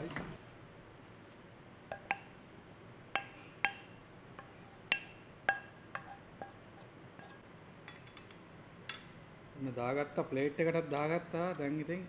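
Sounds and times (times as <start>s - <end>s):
spatula clanking on metal pan: 1.9s - 2.3s, 3.2s - 6.6s.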